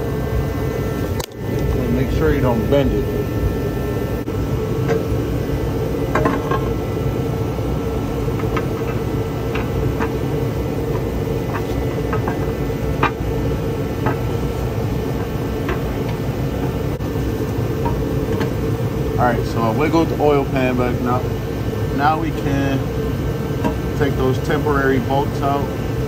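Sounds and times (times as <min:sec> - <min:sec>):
background hum: 0:00.0 - 0:26.0
metal clicks and knocks: 0:10.9 - 0:13.2.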